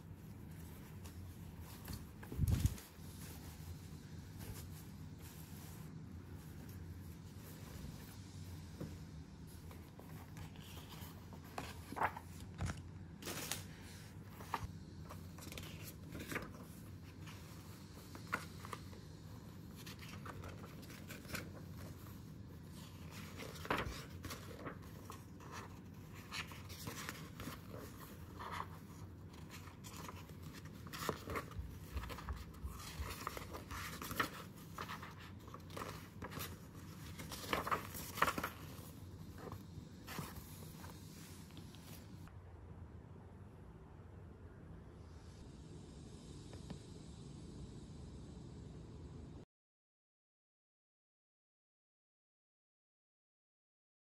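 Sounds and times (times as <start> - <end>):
paper calendar pages rustling: 0.0 - 42.3.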